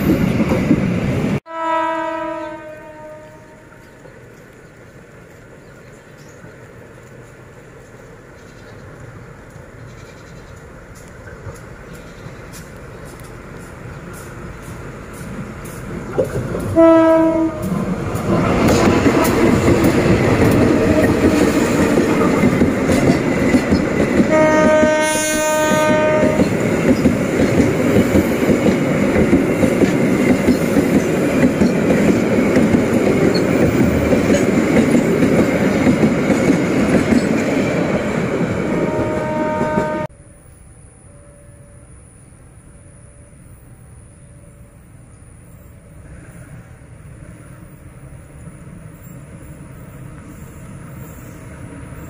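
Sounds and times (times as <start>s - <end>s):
diesel locomotive passing: 0.0s - 52.0s
train wheels running past: 0.0s - 52.0s
train horn blast: 1.4s - 3.8s, 16.7s - 17.8s, 24.2s - 26.6s, 38.6s - 40.1s.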